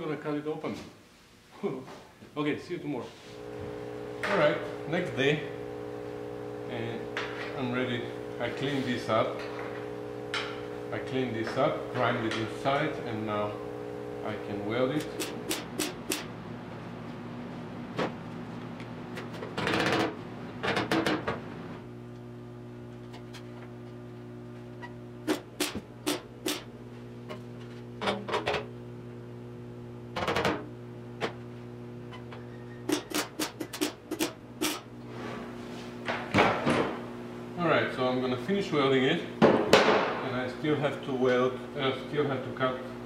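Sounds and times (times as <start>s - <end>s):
welder hum: 3.2s - 16.5s, 21.8s - 39.4s
welding arc crackle: 14.8s - 16.3s, 25.2s - 26.7s, 32.9s - 34.9s.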